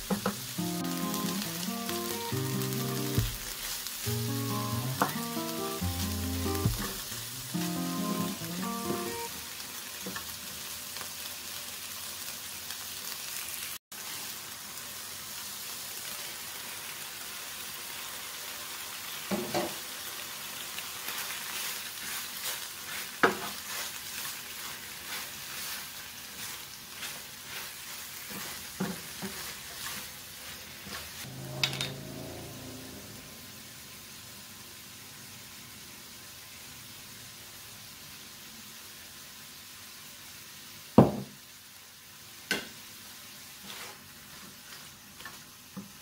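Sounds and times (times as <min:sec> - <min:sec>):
food sizzling in a frying pan: 0:00.0 - 0:46.0
wooden spatula scraping a pan: 0:21.5 - 0:32.7, 0:43.6 - 0:45.4.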